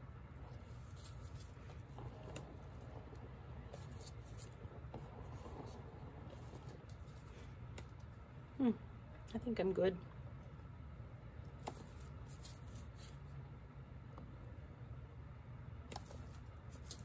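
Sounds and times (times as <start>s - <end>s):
low steady hum: 0.0s - 17.0s
wooden stick scratching canvas: 0.4s - 7.9s.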